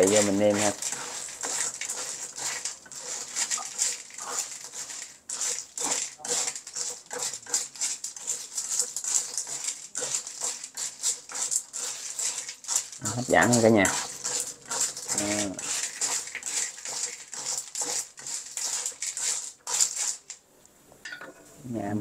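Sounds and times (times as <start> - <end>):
snail shells clattering: 0.0 - 20.4
spatula scraping: 0.0 - 20.4
faint sizzle: 0.0 - 22.0.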